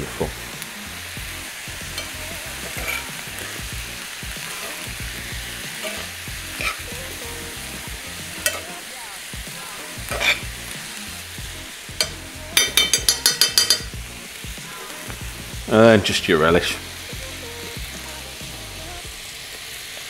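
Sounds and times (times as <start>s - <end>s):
stew sizzling in a skillet: 0.0s - 20.0s
metal spoon stirring and scraping: 1.9s - 3.6s, 4.4s - 7.2s, 8.2s - 8.8s, 10.0s - 10.5s, 12.0s - 14.0s.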